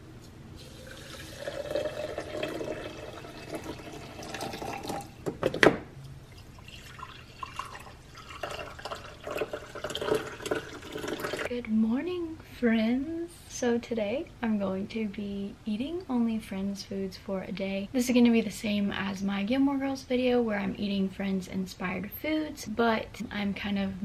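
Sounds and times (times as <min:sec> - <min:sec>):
coffee pouring into mug: 0:00.6 - 0:05.2, 0:06.3 - 0:11.5
water pouring into glass: 0:00.6 - 0:05.2, 0:06.2 - 0:11.5.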